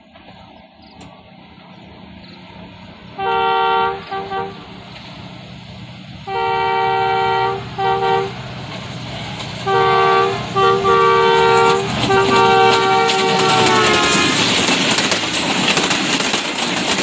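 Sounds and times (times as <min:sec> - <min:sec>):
low rumble of train: 0:00.0 - 0:17.0
train horn blasts: 0:03.2 - 0:04.8, 0:06.2 - 0:08.4, 0:09.6 - 0:14.6.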